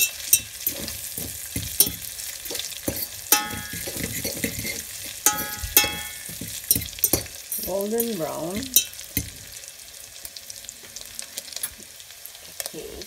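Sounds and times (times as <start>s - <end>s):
stirring scraping metal pot: 0.0s - 9.4s
bacon sizzling and crackling: 0.0s - 13.0s
metal pot ringing: 1.7s - 9.0s.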